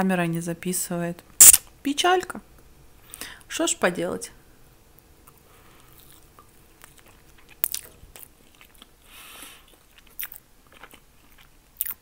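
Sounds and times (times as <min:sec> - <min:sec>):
person chewing with mouth smacks: 0:05.2 - 0:12.0.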